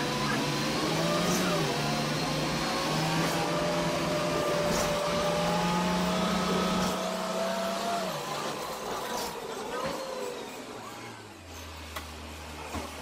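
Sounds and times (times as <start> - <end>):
bus engine hum and whine: 0.0 - 13.0.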